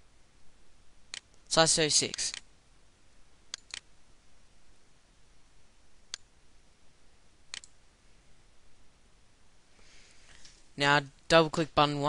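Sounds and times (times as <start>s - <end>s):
faint room hiss: 0.0s - 12.0s
mouse buttons clicking: 3.5s - 3.9s, 7.5s - 7.8s.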